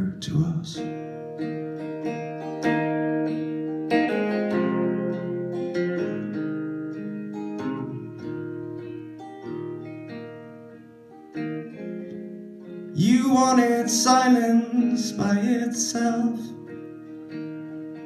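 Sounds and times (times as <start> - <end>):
solo electric guitar: 0.0 - 18.0.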